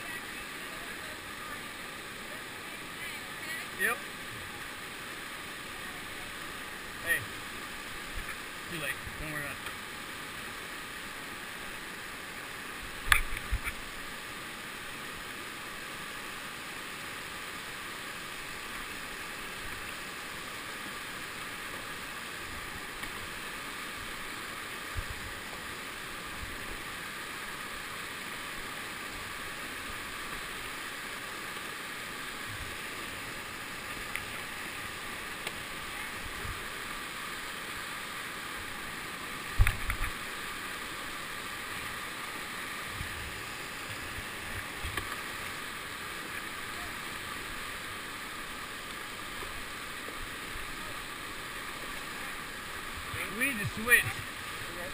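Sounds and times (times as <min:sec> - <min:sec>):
river rapids rushing: 0:00.0 - 0:54.9.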